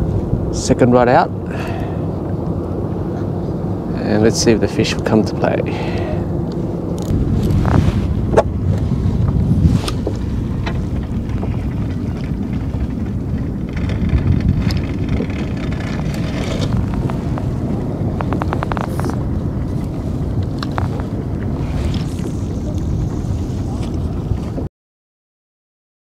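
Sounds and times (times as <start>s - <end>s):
wind rumble on microphone: 0.0s - 24.7s
small clicks and ticks: 9.9s - 21.1s.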